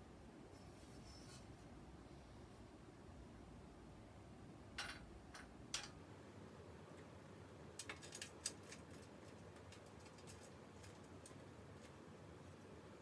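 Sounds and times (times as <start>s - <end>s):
metal parts clicking and tapping: 4.8s - 6.0s, 7.8s - 12.0s.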